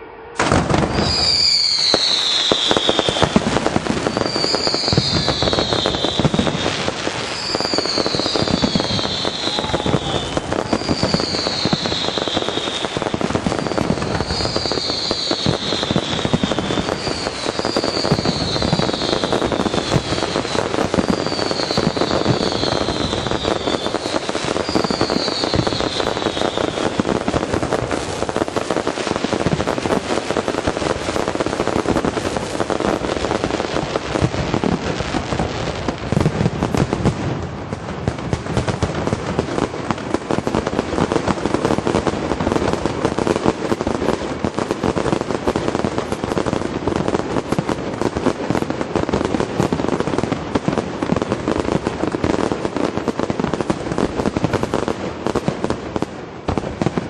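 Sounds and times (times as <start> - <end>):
crackling fireworks stars: 0.0 - 57.0
high fireworks whistles: 0.0 - 57.0
fireworks shell bursts: 0.4 - 3.4.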